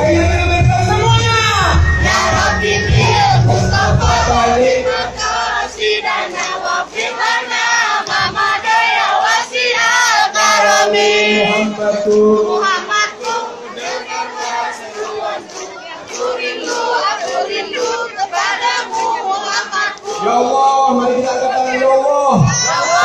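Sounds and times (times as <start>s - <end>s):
low-pitched backing music: 0.0s - 6.1s
man singing through a microphone: 0.0s - 6.1s, 10.0s - 15.3s, 19.0s - 23.0s
crowd singing along: 0.0s - 23.0s.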